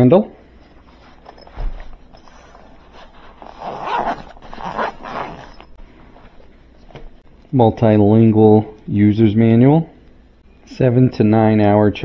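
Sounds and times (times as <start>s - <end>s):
zipper pulled open: 0.8s - 5.8s.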